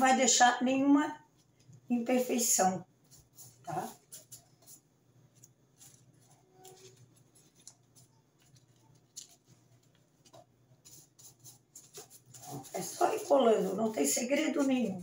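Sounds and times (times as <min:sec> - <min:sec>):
soft taps and paper rustles: 0:03.0 - 0:13.7.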